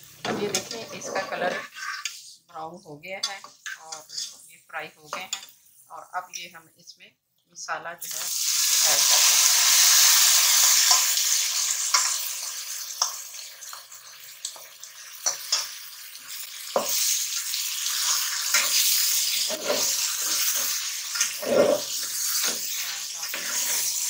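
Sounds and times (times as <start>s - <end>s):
food sizzling in oil: 0.0s - 2.5s, 3.2s - 6.0s, 8.0s - 24.0s
spatula scraping metal pot: 0.4s - 2.4s, 3.2s - 4.4s, 18.0s - 24.0s.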